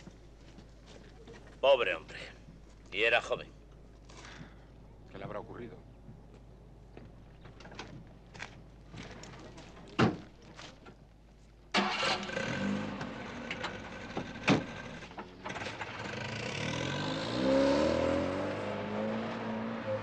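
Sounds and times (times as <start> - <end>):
car engine starting and revving: 11.8 - 20.0.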